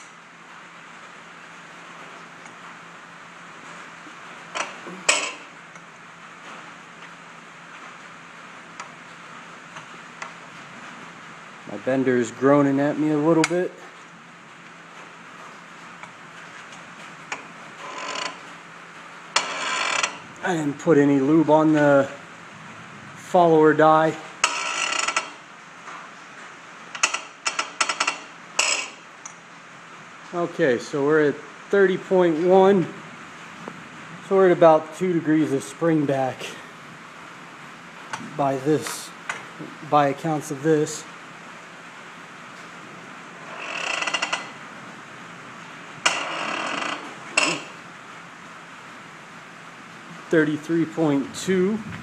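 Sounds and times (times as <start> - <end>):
metal bender creaking and clicking: 4.6 - 5.5, 17.3 - 18.5, 19.3 - 20.3, 24.4 - 25.4, 26.9 - 29.4, 43.4 - 44.6, 46.0 - 47.8.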